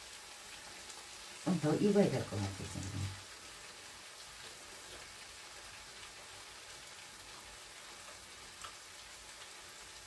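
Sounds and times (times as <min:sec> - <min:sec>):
vegetables sizzling in a pan: 0:00.0 - 0:10.0.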